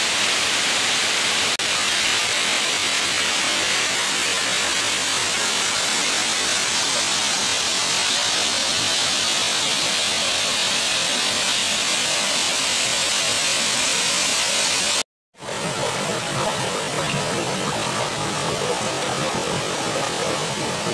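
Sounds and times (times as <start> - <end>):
small waterfall splashing: 0.0 - 20.9.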